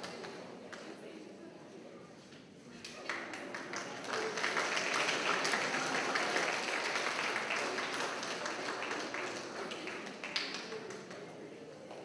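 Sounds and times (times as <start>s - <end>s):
audience applauding: 3.1s - 11.1s.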